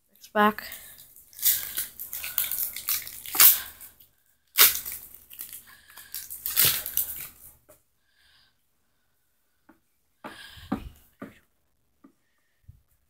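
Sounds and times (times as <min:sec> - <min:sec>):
foil wrapper crinkling and tearing: 0:00.9 - 0:07.5.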